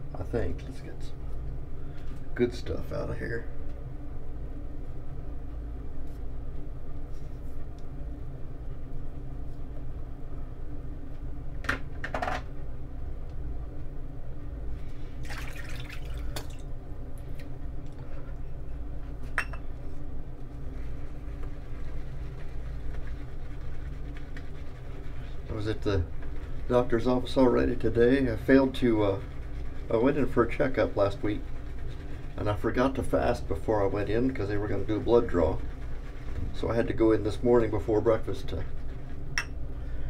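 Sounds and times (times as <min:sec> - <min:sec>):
steady low hum: 0:00.0 - 0:40.0
shaving brush wet swishes: 0:20.6 - 0:39.1.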